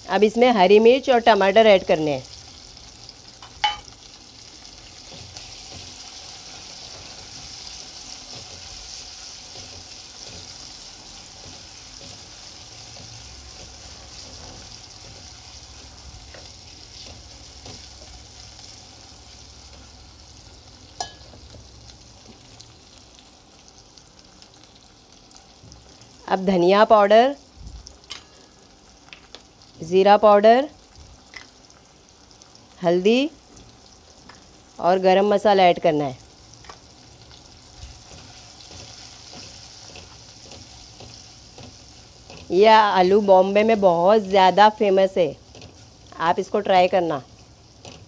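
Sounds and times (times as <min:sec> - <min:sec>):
vegetables sizzling in hot oil: 0:00.0 - 0:48.0
sharp clink: 0:03.4 - 0:03.9.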